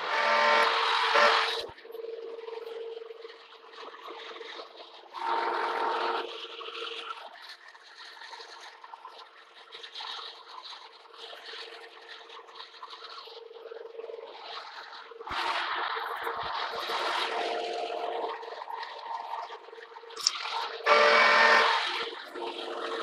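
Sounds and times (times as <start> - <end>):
loud whirring: 0.0 - 1.7, 5.2 - 6.6, 15.3 - 18.5, 20.2 - 23.0
machine shop equipment humming: 0.0 - 2.9, 5.2 - 6.7, 15.8 - 19.0, 20.2 - 23.0.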